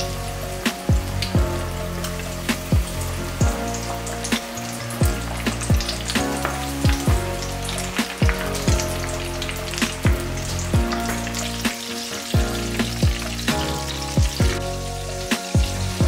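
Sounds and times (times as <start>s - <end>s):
chicken deep-frying in oil: 0.0s - 16.0s
music with kick drum: 0.7s - 1.7s, 2.5s - 7.4s, 8.0s - 11.1s, 11.7s - 14.6s, 15.3s - 16.0s.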